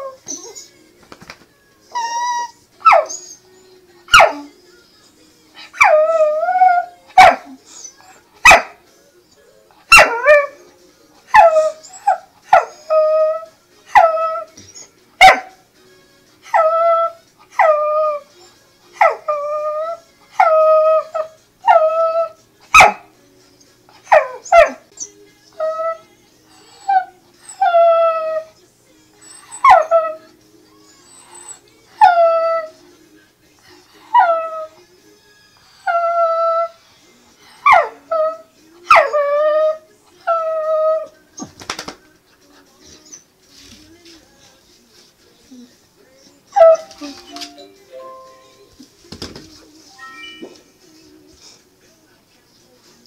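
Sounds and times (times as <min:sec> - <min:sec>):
dog whining: 0:00.0 - 0:00.8, 0:01.9 - 0:03.6, 0:05.7 - 0:08.3, 0:11.3 - 0:15.0, 0:24.1 - 0:28.5, 0:29.2 - 0:32.8, 0:35.6 - 0:36.8, 0:46.2 - 0:47.4.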